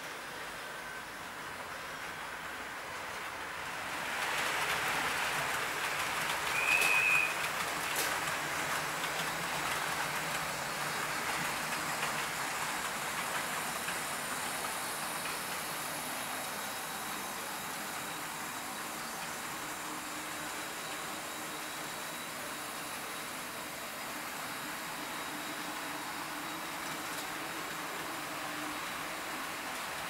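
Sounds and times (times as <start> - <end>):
model train rattling on track: 0.0 - 30.0
high whistle-like tone: 6.5 - 7.4.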